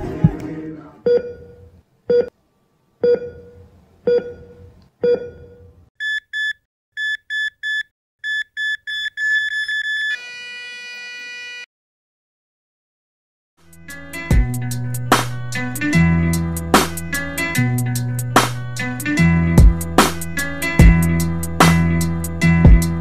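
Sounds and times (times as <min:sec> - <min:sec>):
heart monitor beeps: 0:03.0 - 0:10.2.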